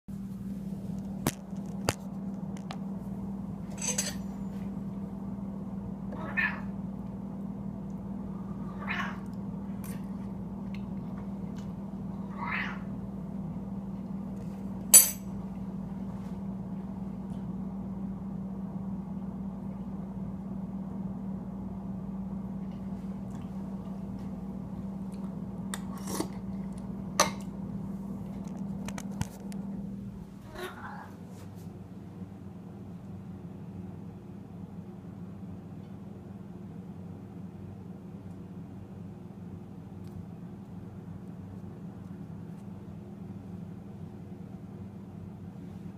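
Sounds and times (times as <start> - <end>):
steady low hum: 0.1 - 45.9
cat meowing: 6.2 - 6.7, 8.7 - 9.3, 12.3 - 12.9.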